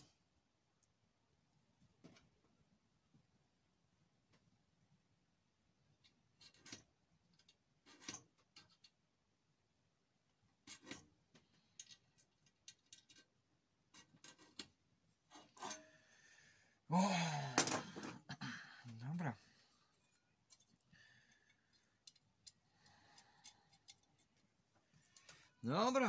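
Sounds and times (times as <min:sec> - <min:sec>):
metal tools scraping and clicking: 0:06.4 - 0:09.0, 0:11.7 - 0:15.9, 0:23.2 - 0:24.4.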